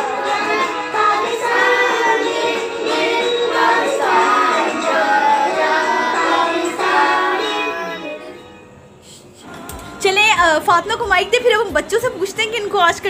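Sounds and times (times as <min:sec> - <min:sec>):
patriotic song with singing: 0:00.0 - 0:08.5.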